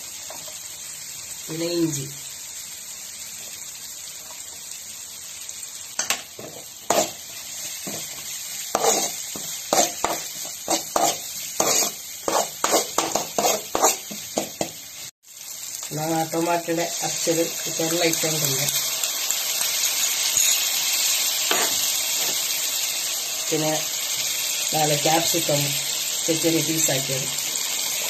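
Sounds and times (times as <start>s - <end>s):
garlic sizzling in oil: 0.0s - 28.0s
steel spoon scraping a pan: 6.0s - 14.7s, 21.5s - 22.5s.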